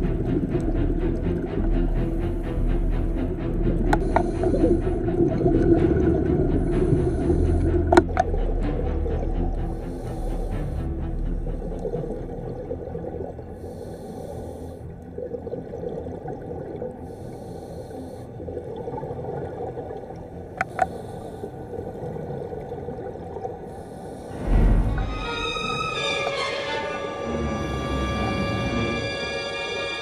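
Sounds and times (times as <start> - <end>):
low water rumble: 0.0 - 30.0
scuba regulator breathing bubbles: 1.6 - 11.0, 13.5 - 15.0, 20.6 - 25.1.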